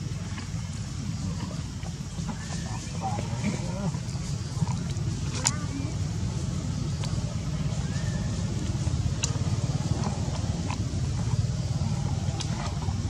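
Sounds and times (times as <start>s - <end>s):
low motor rumble: 0.0s - 13.0s.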